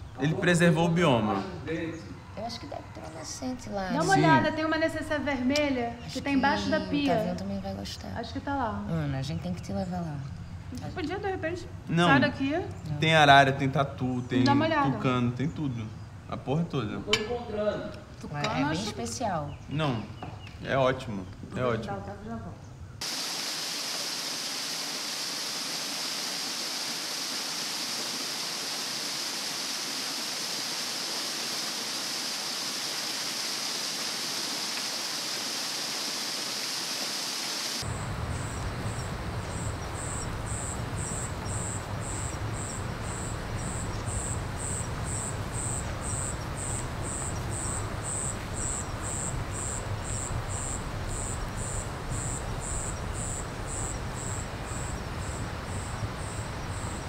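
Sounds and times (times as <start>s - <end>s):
insects droning: 0.0s - 57.0s
pulsing insect call: 23.0s - 57.0s.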